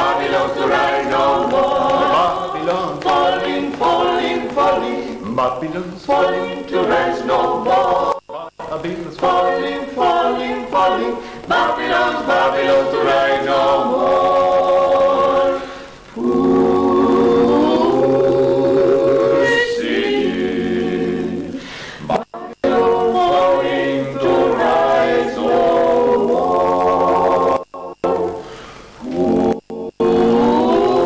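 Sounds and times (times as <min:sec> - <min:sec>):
group singing in harmony: 0:00.0 - 0:31.0.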